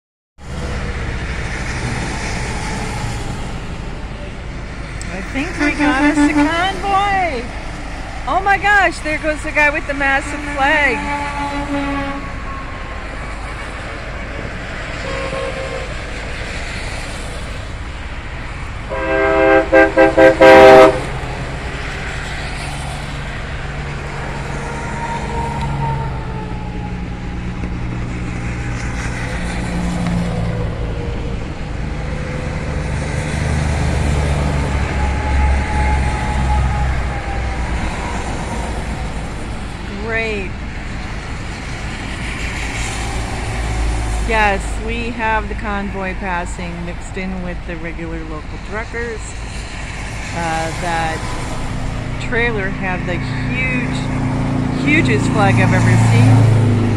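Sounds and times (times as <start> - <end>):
truck engine rumble passing: 0.4 - 56.9
tyres hissing on wet road: 0.5 - 26.0, 26.7 - 45.9, 48.2 - 56.9
truck air horn blasts: 5.3 - 7.1, 10.2 - 14.3, 15.0 - 16.0, 18.9 - 21.2.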